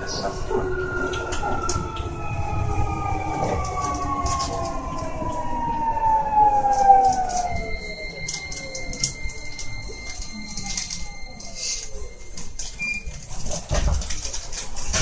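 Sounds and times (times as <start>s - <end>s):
train inverter whine falling in pitch: 0.0s - 11.4s.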